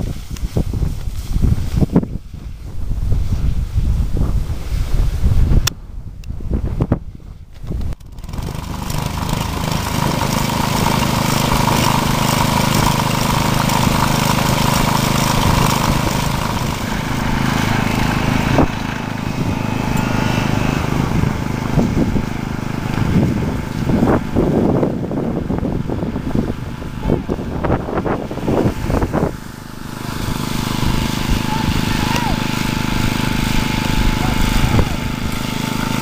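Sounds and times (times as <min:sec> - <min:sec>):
small engine running: 0:07.8 - 0:36.0.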